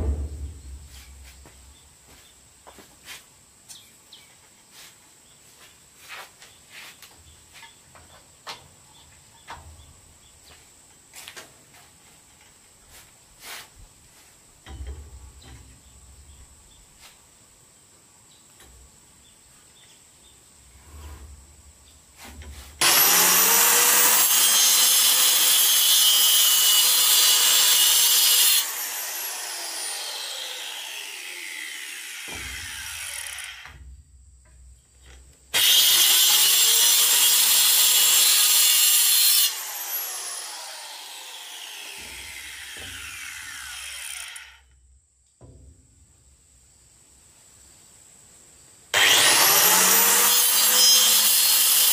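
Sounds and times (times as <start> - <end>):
circular saw cutting wood: 22.8 - 33.8, 35.5 - 44.7, 48.9 - 51.9
saw blade winding down: 22.8 - 33.8, 35.5 - 44.8, 48.9 - 51.9.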